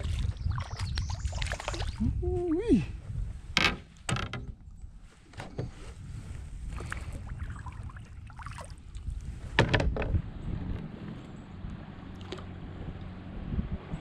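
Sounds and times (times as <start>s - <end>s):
knocks and clatters in plastic boat: 3.6s - 6.0s, 9.4s - 10.2s
low rumble: 6.1s - 14.0s.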